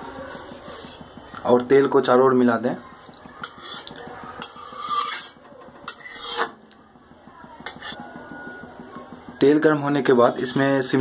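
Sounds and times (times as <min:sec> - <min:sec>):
metal spatula scraping a metal pan: 0:00.3 - 0:01.2, 0:03.2 - 0:06.6, 0:07.6 - 0:08.1.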